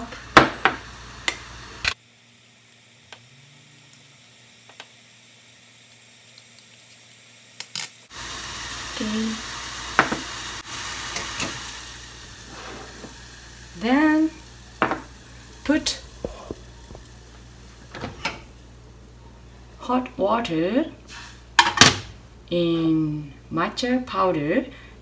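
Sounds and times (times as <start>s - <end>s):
water heating in a pot hissing: 0.0s - 19.6s.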